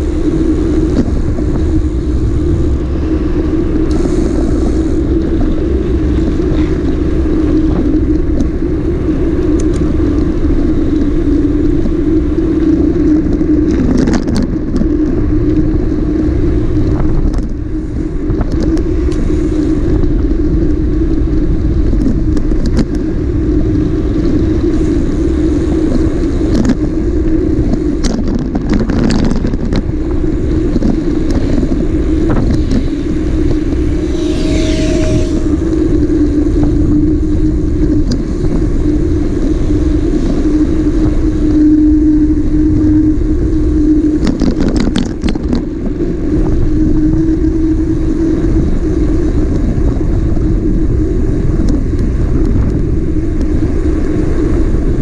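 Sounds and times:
motorcycle engine riding: 0:00.0 - 0:55.0
short higher tone: 0:33.9 - 0:36.2.

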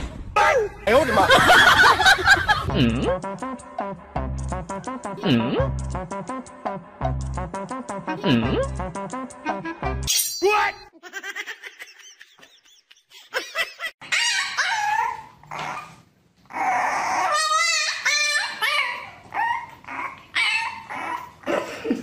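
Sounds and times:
puppy whining and yelping: 0:14.0 - 0:21.5.

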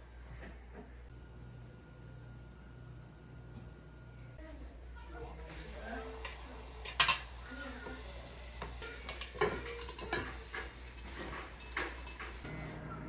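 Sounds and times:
fish sizzling in oil: 0:05.4 - 0:12.5.

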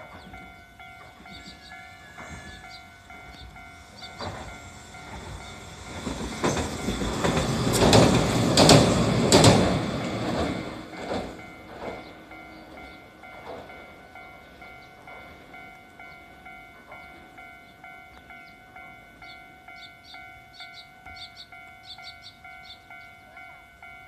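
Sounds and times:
tram running noise: 0:00.0 - 0:24.0
wheel clacks over rail joints: 0:04.0 - 0:12.2.

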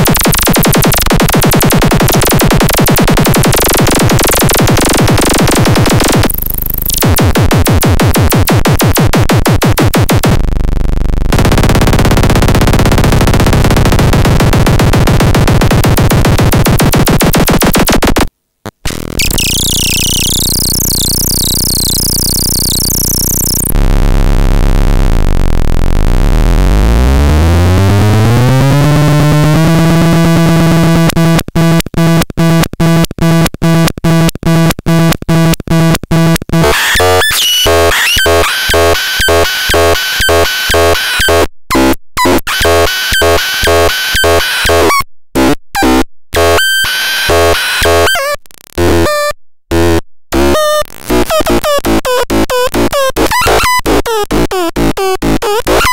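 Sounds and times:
buzzing synthesizer drone: 0:00.0 - 0:07.1, 0:10.0 - 0:16.4, 0:18.9 - 0:31.8, 0:36.6 - 0:41.4
stuttering pulse with high bleeps: 0:00.0 - 0:10.5, 0:19.1 - 0:23.8, 0:36.6 - 0:41.4.

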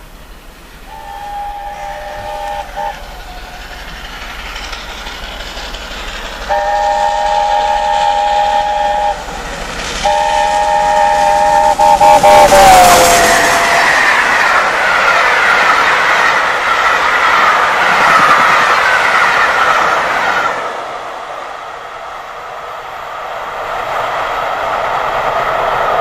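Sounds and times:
locomotive running noise: 0:00.0 - 0:26.0
steam locomotive chime whistle: 0:00.8 - 0:04.0, 0:06.4 - 0:09.4, 0:10.0 - 0:14.5.

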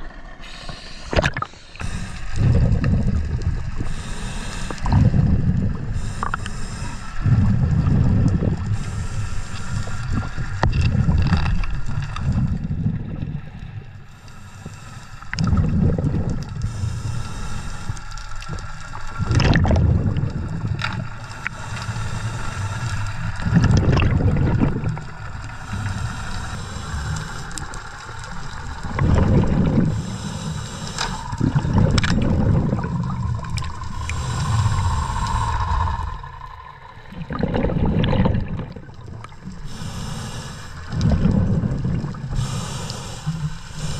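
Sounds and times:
exhaled bubbles rumbling: 0:00.0 - 0:14.5, 0:15.2 - 0:43.9
regulator hissing inhalations: 0:00.4 - 0:02.4, 0:03.8 - 0:05.0, 0:05.9 - 0:07.3, 0:08.7 - 0:10.3, 0:14.1 - 0:15.4, 0:16.6 - 0:18.2, 0:25.5 - 0:28.0, 0:29.8 - 0:31.5, 0:33.9 - 0:36.1, 0:39.6 - 0:41.0, 0:42.3 - 0:43.9.

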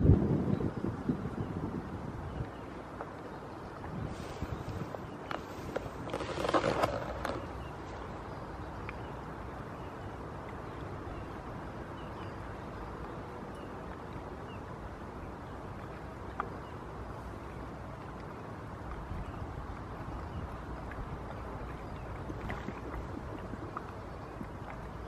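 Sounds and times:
wind rumble on microphone: 0:00.0 - 0:25.0
pony slurping water: 0:03.8 - 0:07.9, 0:17.8 - 0:25.0.

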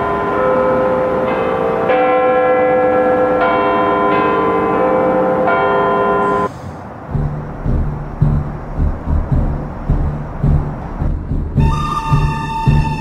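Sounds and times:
clock tower bells chiming: 0:00.0 - 0:06.5.

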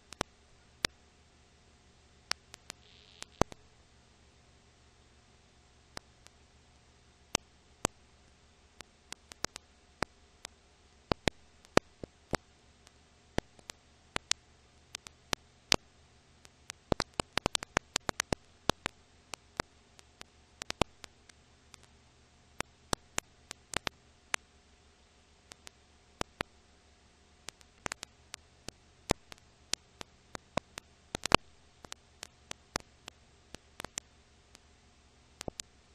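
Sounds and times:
record crackle clicks and pops: 0:00.0 - 0:01.2, 0:01.9 - 0:04.0, 0:05.0 - 0:35.9
faint hiss and hum: 0:00.0 - 0:35.9.

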